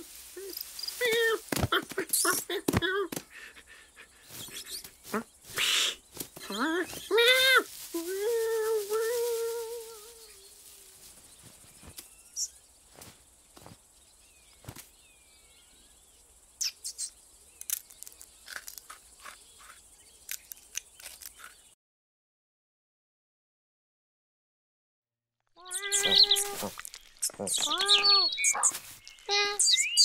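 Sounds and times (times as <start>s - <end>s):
crickets: 0.0s - 21.8s, 25.6s - 30.0s
falling cartoon vocal cry: 25.6s - 26.7s.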